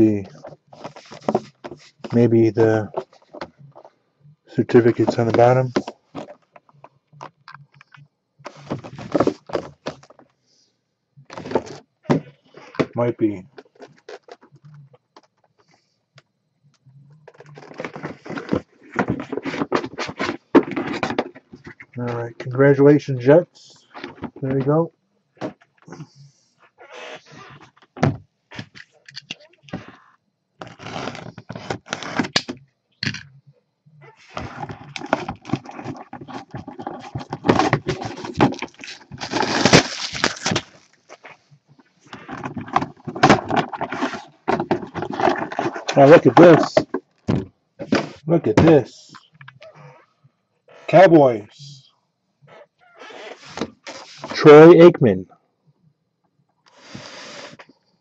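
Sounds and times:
cardboard box rustling and clicking: 0.7s - 2.2s, 8.6s - 10.2s, 34.4s - 40.8s, 42.2s - 48.2s
plastic wrap crinkling and tearing: 34.9s - 41.0s.

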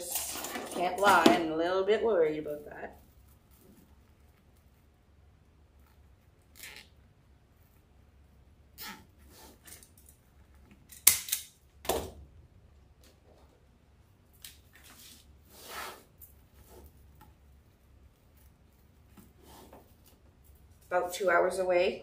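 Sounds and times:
craft tools handled: 0.0s - 1.4s.

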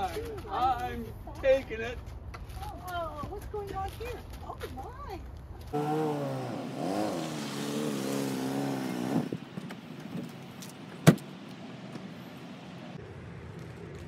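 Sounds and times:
car door slamming: 10.9s - 11.3s.

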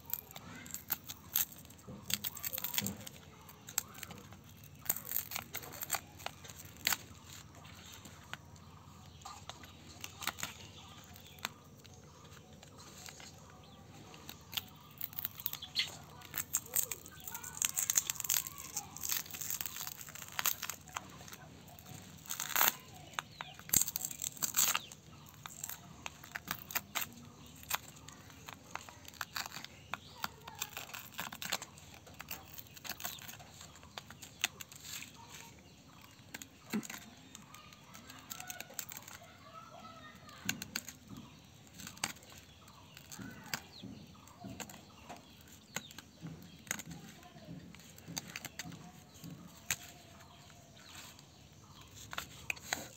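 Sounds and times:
glass screen protector cracking: 0.0s - 41.2s.

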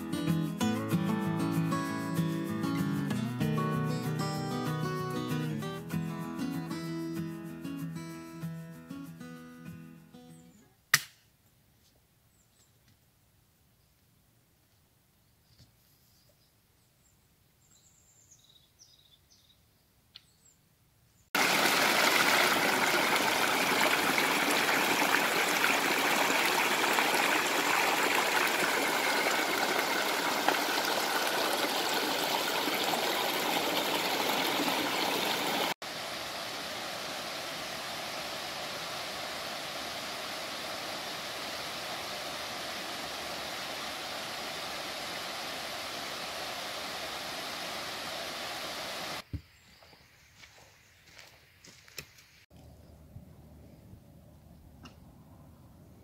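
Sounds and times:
stream rushing over rocks: 21.4s - 49.2s.

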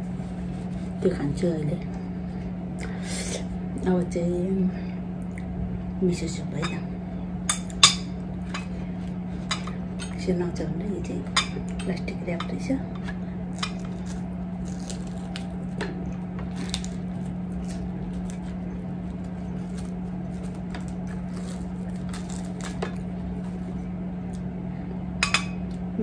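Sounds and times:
steady low hum: 0.0s - 26.0s
cling wrap crinkling: 13.5s - 24.4s.

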